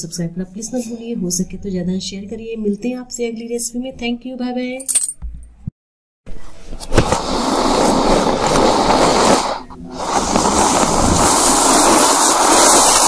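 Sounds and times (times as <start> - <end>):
loud rushing hiss: 7.0 - 13.0.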